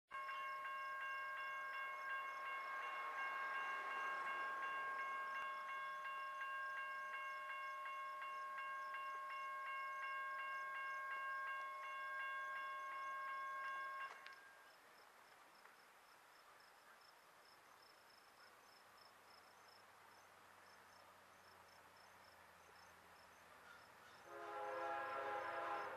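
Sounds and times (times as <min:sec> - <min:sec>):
railroad crossing bell ringing: 0:00.1 - 0:14.8.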